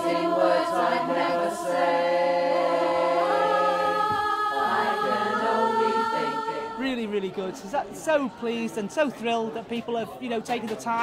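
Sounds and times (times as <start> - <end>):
choir singing: 0.0 - 8.8.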